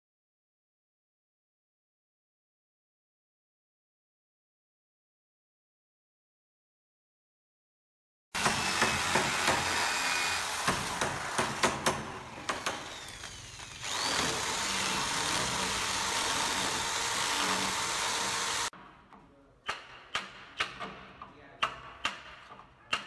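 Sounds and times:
electric drill boring into wood: 8.4 - 18.7.

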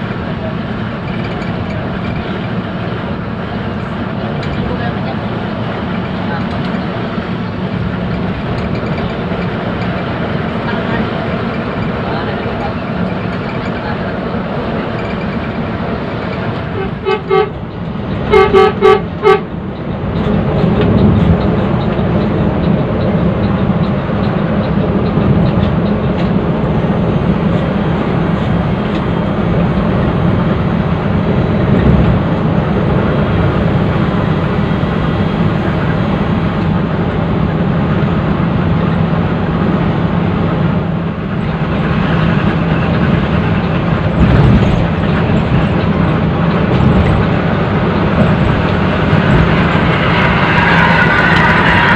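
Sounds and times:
bus engine and road noise: 0.0 - 51.9
bus horn blasts: 16.7 - 19.6.

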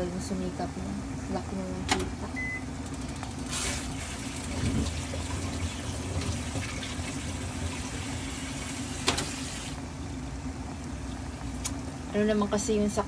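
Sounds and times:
steady low hum: 0.0 - 13.0
soup bubbling in pot: 2.7 - 9.0.

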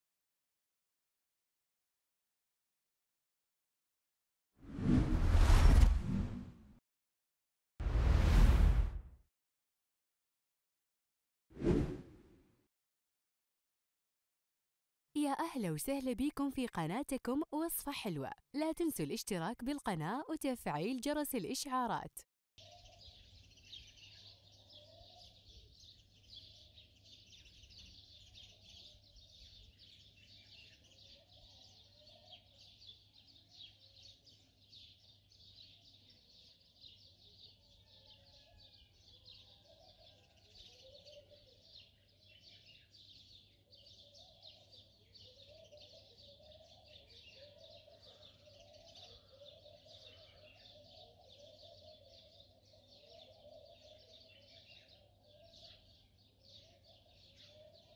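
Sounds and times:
birds chirping: 15.2 - 22.2.

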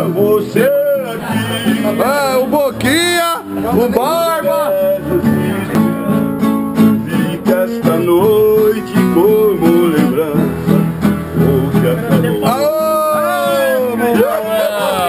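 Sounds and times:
acoustic guitar strumming: 0.0 - 15.0
person's voice: 11.7 - 15.0.

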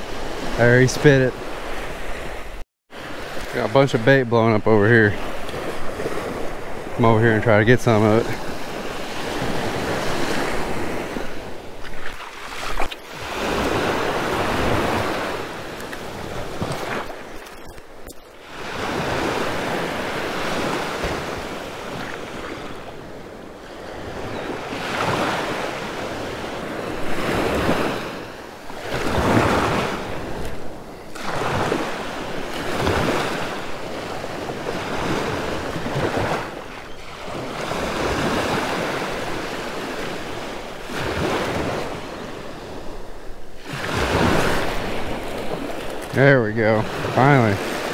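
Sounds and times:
small waves breaking on beach: 0.0 - 47.9.

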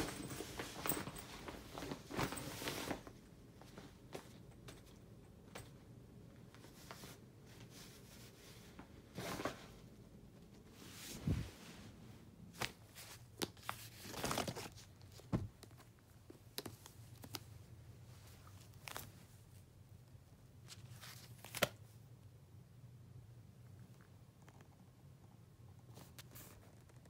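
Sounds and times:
crinkly rustling: 0.0 - 10.0, 10.6 - 19.7.

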